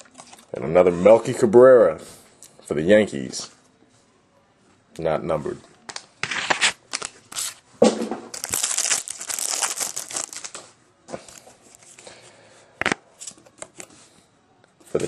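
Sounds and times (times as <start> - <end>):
trading cards rustling: 8.3 - 12.1.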